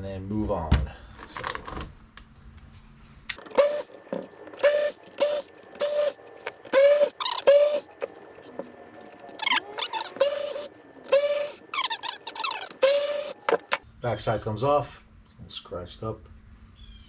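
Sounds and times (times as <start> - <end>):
electric screwdriver whirring: 3.4 - 13.8.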